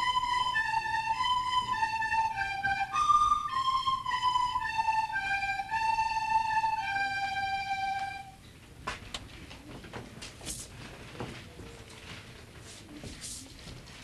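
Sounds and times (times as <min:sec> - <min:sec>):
woodwinds playing slow melody: 0:00.0 - 0:08.4.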